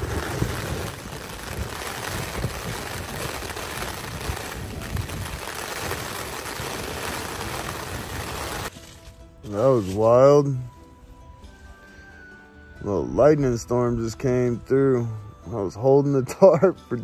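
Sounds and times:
gusting wind: 0:00.0 - 0:09.0
heavy rain on a tarp: 0:00.0 - 0:09.2.

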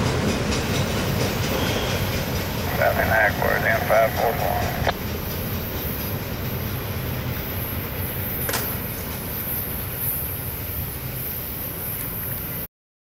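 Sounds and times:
freight train rumbling on rails: 0:00.0 - 0:12.7.

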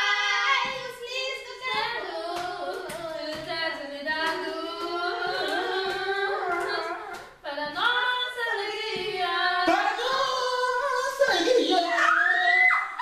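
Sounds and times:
group of voices singing: 0:00.0 - 0:13.0.

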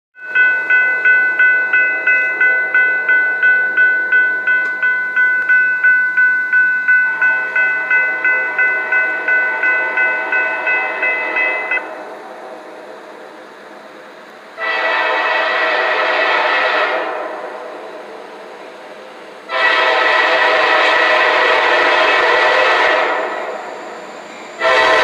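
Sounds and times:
railroad crossing bell ringing: 0:00.2 - 0:12.0, 0:19.5 - 0:25.0.

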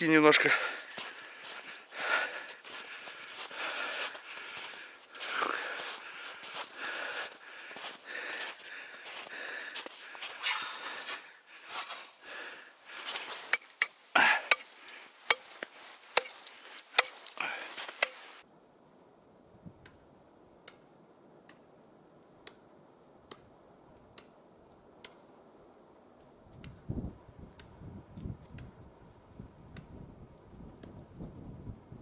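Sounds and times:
ice crunching and scraping: 0:02.6 - 0:12.3, 0:12.9 - 0:18.4
sharp strikes on ice: 0:13.5 - 0:18.4
faint ticks: 0:26.2 - 0:26.8, 0:29.7 - 0:29.9.

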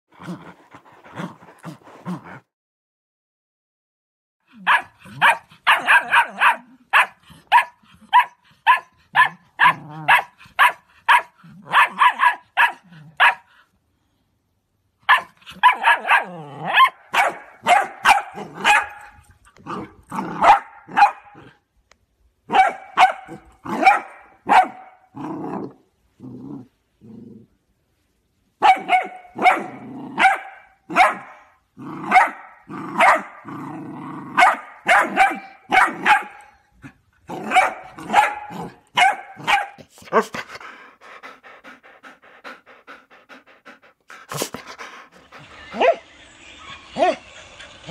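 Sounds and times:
dog barking: 0:04.6 - 0:13.5, 0:15.1 - 0:19.2, 0:20.4 - 0:21.4, 0:22.5 - 0:25.1, 0:28.6 - 0:31.5, 0:32.1 - 0:33.4, 0:34.4 - 0:36.5, 0:37.4 - 0:40.3.

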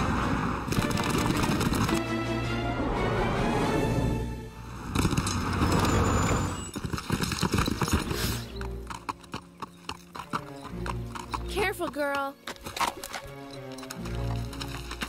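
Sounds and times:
background music: 0:00.7 - 0:15.0
horse hooves on rocky ground: 0:05.0 - 0:15.0.

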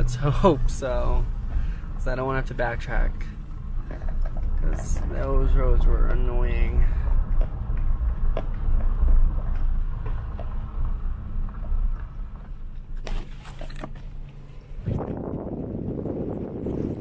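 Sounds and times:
truck rumble on gravel: 0:00.0 - 0:17.0
wind noise: 0:00.0 - 0:17.0
knocks and rattles: 0:03.5 - 0:12.6.

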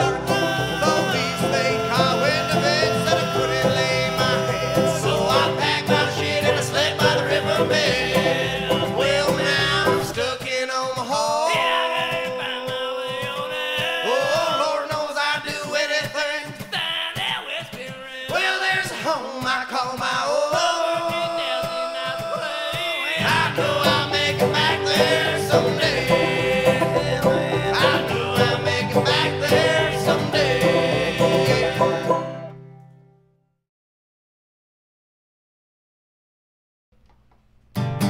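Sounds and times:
steady bass: 0:00.0 - 0:10.2, 0:23.2 - 0:32.4
guitar: 0:00.0 - 0:14.7, 0:18.3 - 0:33.5, 0:37.0 - 0:38.0
banjo: 0:00.0 - 0:16.6, 0:17.2 - 0:32.8.

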